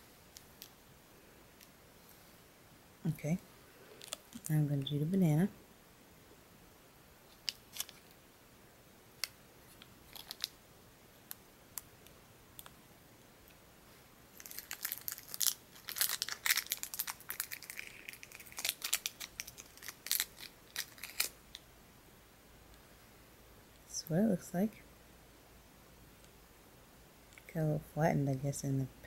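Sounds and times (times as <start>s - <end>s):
candy wrapper crinkling: 4.0s - 4.5s, 7.3s - 8.2s, 9.2s - 10.6s, 14.3s - 21.6s.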